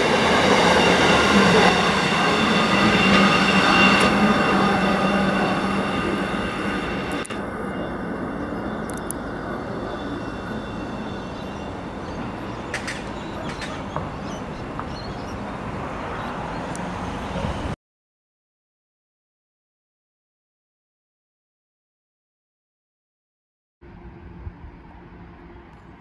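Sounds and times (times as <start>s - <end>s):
high squealing tones: 0.0s - 15.4s
train wheels rumbling on rail: 0.0s - 17.8s.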